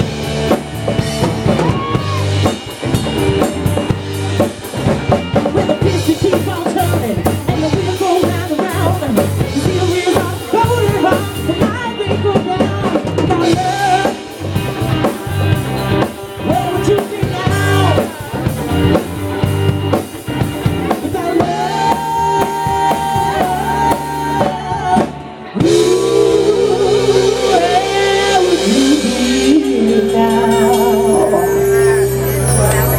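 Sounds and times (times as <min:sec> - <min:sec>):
drum kit: 0:00.0 - 0:32.9
electric bass: 0:00.0 - 0:32.9
electric guitar: 0:00.0 - 0:32.9
woman singing: 0:05.8 - 0:14.2, 0:16.5 - 0:18.4, 0:20.9 - 0:32.0.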